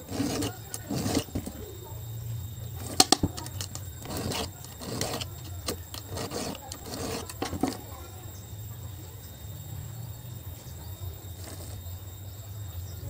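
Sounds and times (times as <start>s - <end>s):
chainsaw chain rattling over bar: 2.8s - 8.0s.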